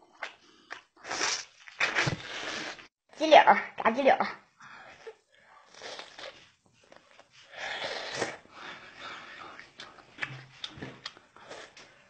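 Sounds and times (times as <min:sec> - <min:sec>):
person chewing: 0:00.1 - 0:02.9, 0:05.0 - 0:08.4, 0:09.5 - 0:11.9
person breathing: 0:07.4 - 0:09.8.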